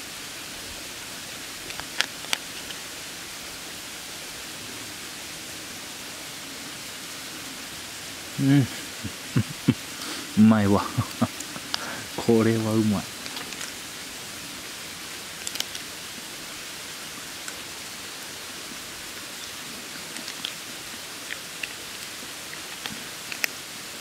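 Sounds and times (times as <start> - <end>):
steady outdoor hiss: 0.0 - 24.0
crab shell cracking: 15.4 - 15.9, 20.1 - 23.6.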